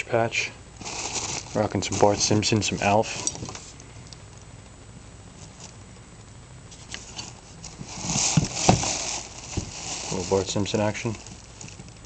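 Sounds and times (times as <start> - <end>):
toys and cloth rustling: 0.8 - 3.8, 7.0 - 12.0.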